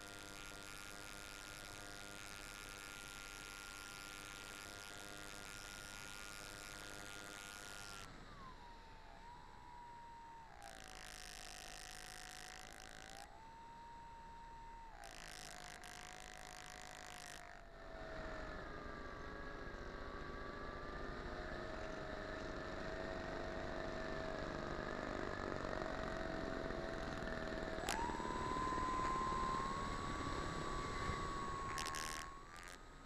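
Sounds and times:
model airplane motor running: 0:00.0 - 0:33.0
click: 0:27.0 - 0:32.8.

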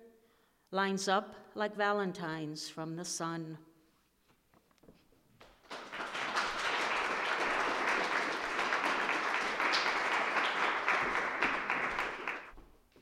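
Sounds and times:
audience applauding: 0:05.6 - 0:12.6.

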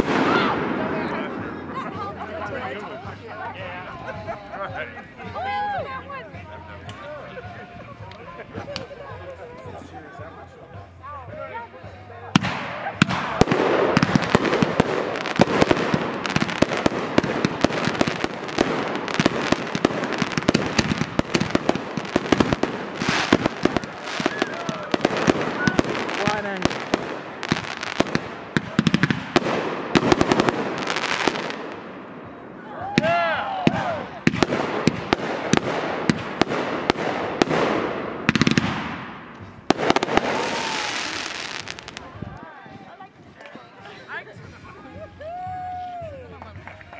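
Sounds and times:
fireworks popping and crackling: 0:12.4 - 0:32.0, 0:33.0 - 0:42.4.

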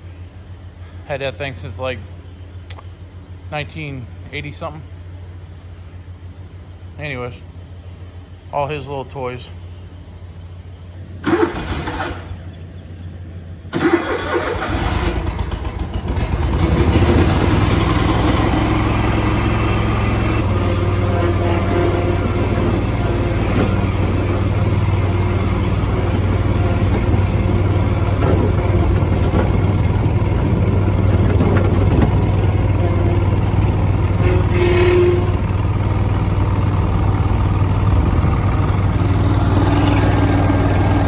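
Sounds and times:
mower engine starting and running: 0:11.0 - 0:41.0.

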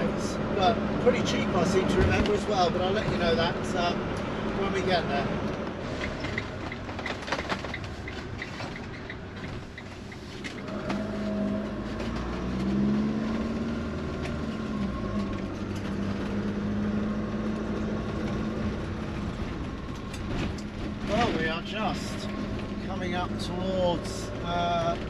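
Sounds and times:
diesel engine accelerating: 0:00.0 - 0:25.0
tyre noise on wet road: 0:00.0 - 0:25.0.

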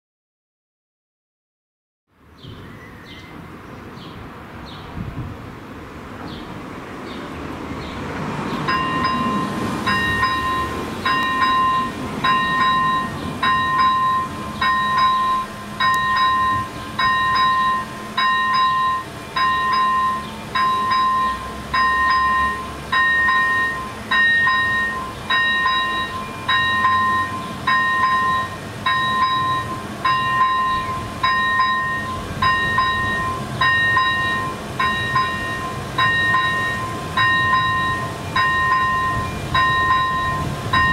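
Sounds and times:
electronic level crossing bell: 0:08.7 - 0:40.9.

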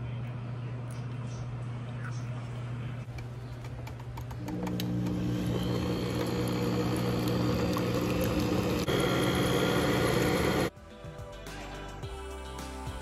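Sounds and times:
stand mixer whirring: 0:04.4 - 0:10.7.

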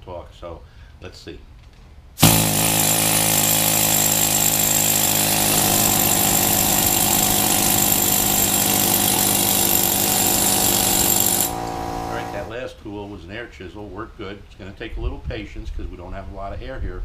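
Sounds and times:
pneumatic air chisel hammering: 0:02.2 - 0:12.5.

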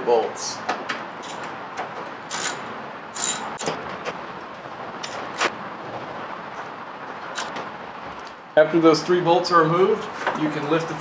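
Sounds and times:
hand ratchet clicking: 0:02.3 - 0:02.6, 0:03.2 - 0:03.7.

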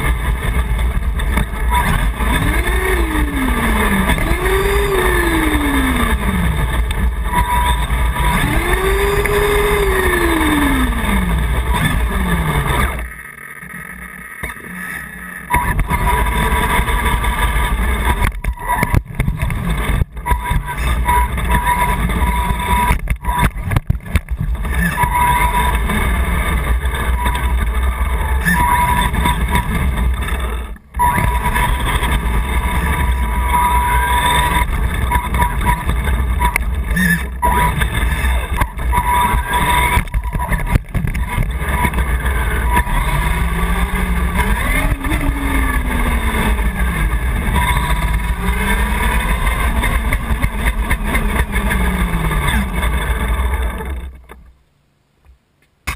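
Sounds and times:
rc car motor whine: 0:00.0 - 0:54.5
camera mount rumble: 0:15.5 - 0:33.5, 0:34.3 - 0:54.5.

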